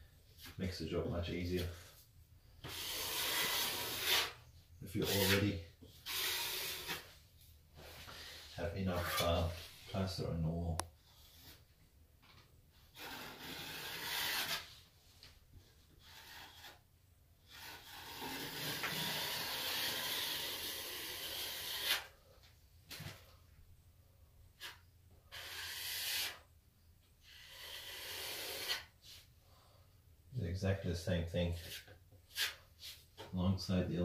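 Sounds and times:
metal knife scraping wet plaster: 2.6 - 7.2, 12.9 - 14.8, 15.8 - 22.1, 24.6 - 26.5, 27.2 - 29.2, 31.6 - 33.2.

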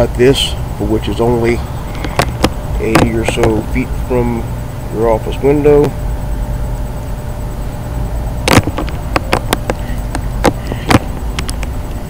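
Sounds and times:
steady low rumble: 0.0 - 12.0
sharp irregular clicks and knocks: 1.9 - 3.6, 8.4 - 12.0.

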